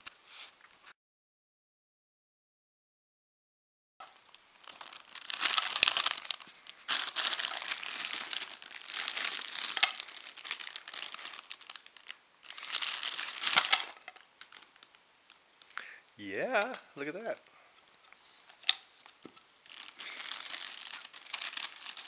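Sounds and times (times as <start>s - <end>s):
plastic bag crinkling: 4.0s - 15.8s, 18.3s - 22.0s.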